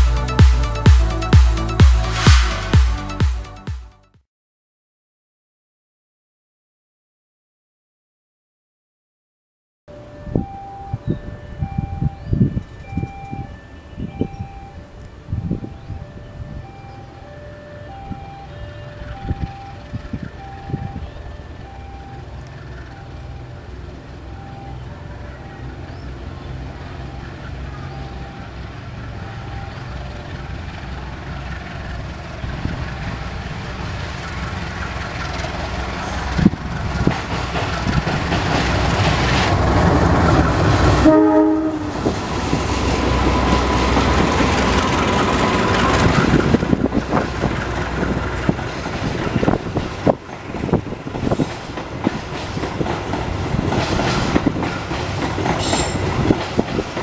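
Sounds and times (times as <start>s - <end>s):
diesel engine rumble: 9.9s - 57.0s
wheels clicking over rail joints: 16.6s - 41.0s, 42.0s - 57.0s
train horn blast: 40.6s - 42.2s.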